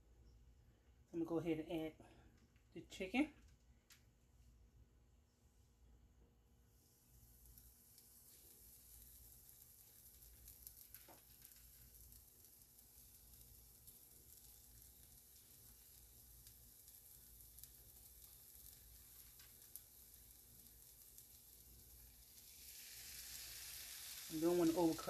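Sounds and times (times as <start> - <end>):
oil sizzling in a skillet: 6.7 - 25.0.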